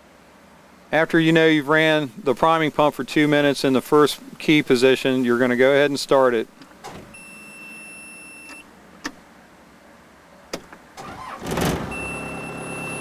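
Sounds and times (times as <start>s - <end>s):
diesel engine cranking and idling: 10.9s - 13.0s
electronic beep: 11.9s - 13.0s.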